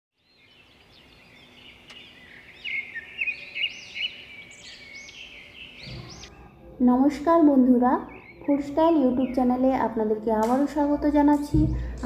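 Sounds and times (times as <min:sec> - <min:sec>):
rising and falling bird calls: 0:00.2 - 0:06.5
birds chirping: 0:00.2 - 0:12.0.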